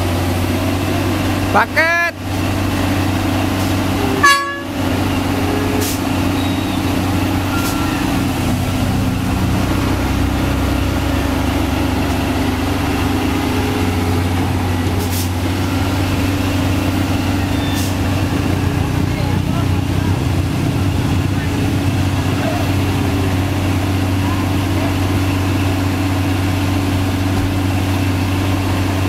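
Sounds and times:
diesel truck engine idling: 0.0s - 29.0s
loud high-pitched tone: 3.8s - 8.3s.

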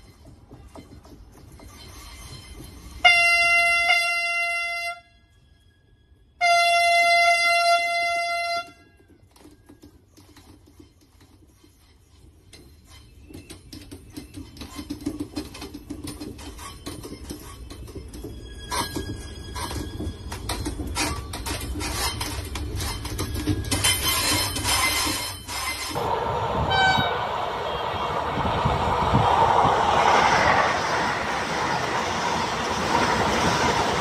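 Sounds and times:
train horn blasts: 3.0s - 5.3s, 6.4s - 9.0s, 26.6s - 28.2s
train rumbling past: 25.4s - 34.0s.

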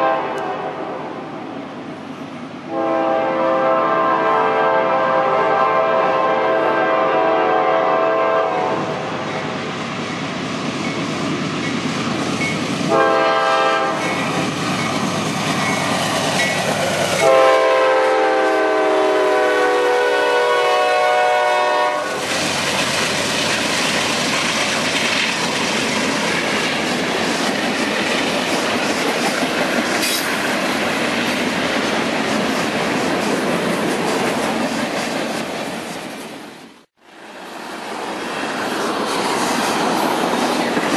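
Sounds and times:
locomotive air horn blasts: 0.0s - 0.8s, 2.7s - 8.9s, 12.9s - 14.1s, 17.2s - 22.2s
freight train rumbling past: 0.0s - 40.9s
wheels clacking over rail joints: 14.0s - 17.4s, 22.2s - 36.0s, 38.5s - 40.9s.

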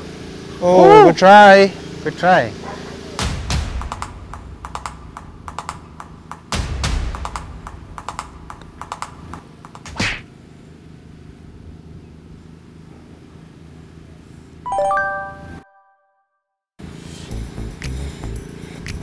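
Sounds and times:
rising chime sound effect: 14.7s - 16.3s
light rhythmic clicking: 17.8s - 19.0s.

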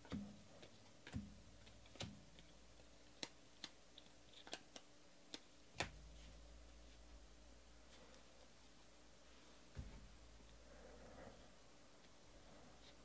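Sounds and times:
trading cards clicking and snapping: 3.1s - 6.0s.

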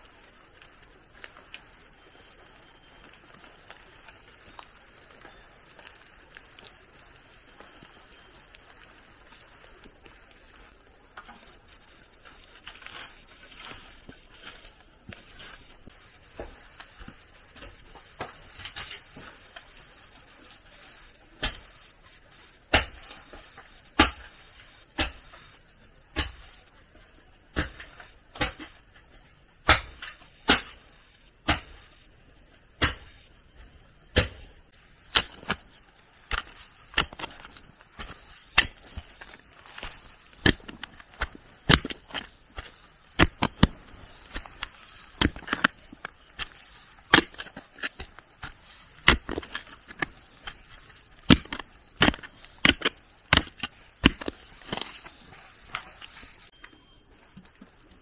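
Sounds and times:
wood being chopped: 22.7s - 23.2s, 24.0s - 24.3s, 24.9s - 25.3s, 26.1s - 26.4s, 27.5s - 28.8s, 29.6s - 30.8s, 31.4s - 31.8s, 32.8s - 33.2s, 34.1s - 34.5s, 35.1s - 35.6s, 36.3s - 55.0s.

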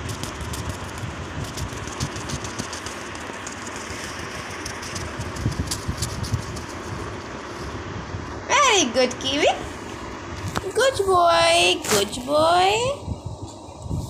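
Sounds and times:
bird wings fluttering: 0.0s - 6.9s
steady background rumble: 0.0s - 14.0s.

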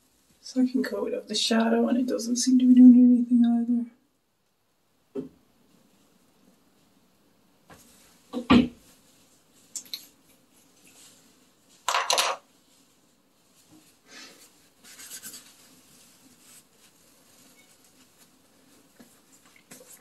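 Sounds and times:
items knocking on hard surface: 8.3s - 8.8s, 11.9s - 12.4s
items clattering: 11.8s - 12.4s.

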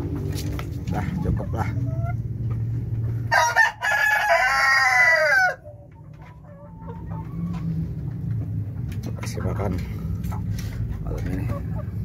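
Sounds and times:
hens clucking softly: 0.0s - 3.3s, 4.8s - 12.0s
rooster crowing: 3.3s - 5.7s.

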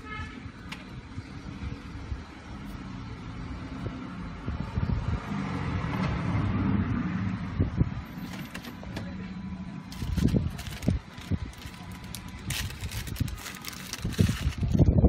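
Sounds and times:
low car cabin rumble: 7.4s - 15.0s
plastic packaging rustling: 9.9s - 14.9s.

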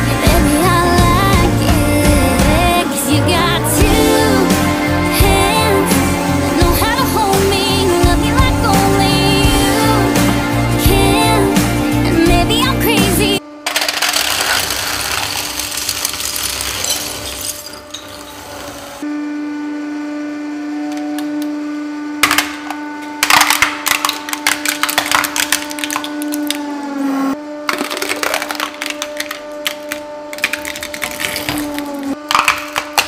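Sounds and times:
hydraulic press humming: 0.0s - 19.1s
plates crunching and shattering: 13.7s - 18.4s, 27.7s - 33.0s
plastic toy cracking: 23.2s - 26.6s, 27.7s - 33.0s.

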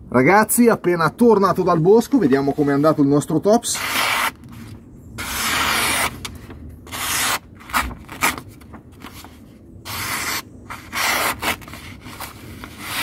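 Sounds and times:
knife slicing paper: 3.7s - 4.4s, 5.2s - 6.3s, 6.9s - 9.2s, 9.9s - 13.0s.

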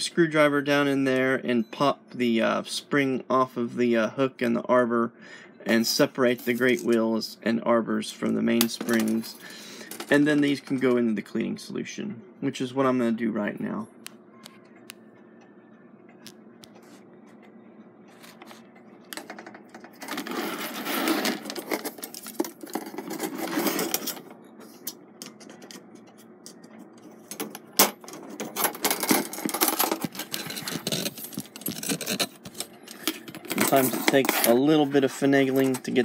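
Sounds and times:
metal spring coils scraping and rattling: 19.4s - 26.3s, 28.0s - 36.0s.

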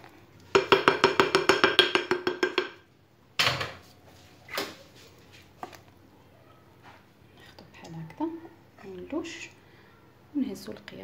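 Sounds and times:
ladle knocking on bowl: 0.6s - 2.8s.

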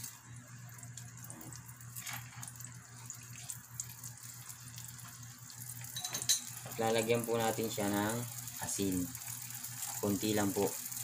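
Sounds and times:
butter sizzling in a frying pan: 0.0s - 11.0s
low steady hum: 0.0s - 11.0s.

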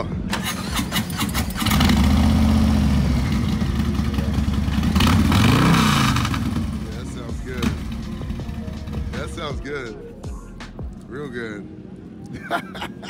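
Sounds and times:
motorcycle engine: 0.3s - 9.4s.

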